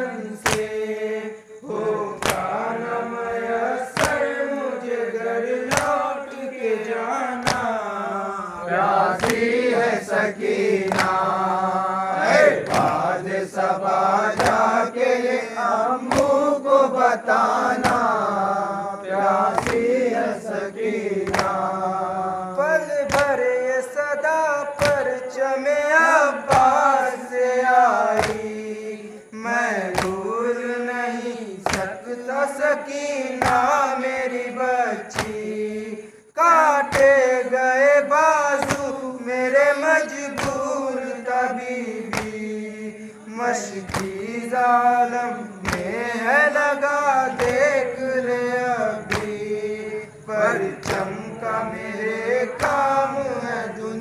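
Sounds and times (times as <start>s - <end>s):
men chanting in unison: 0.0s - 54.0s
chest slaps: 0.5s - 0.8s, 2.2s - 2.6s, 4.0s - 4.3s, 5.7s - 6.0s, 7.4s - 7.8s, 9.2s - 9.6s, 10.9s - 11.3s, 12.6s - 13.1s, 14.4s - 14.7s, 16.1s - 16.4s, 19.5s - 20.0s, 21.2s - 21.6s, 23.1s - 23.3s, 31.7s - 31.9s, 35.2s - 35.4s, 42.1s - 42.5s, 43.9s - 44.2s, 45.6s - 46.0s, 47.4s - 47.7s, 49.1s - 49.4s, 50.8s - 51.2s.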